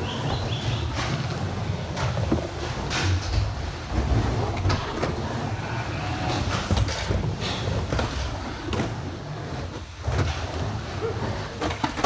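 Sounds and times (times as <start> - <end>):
skateboard clacking: 0.0 - 5.5, 6.3 - 12.0
skateboard wheels rolling: 0.0 - 12.0.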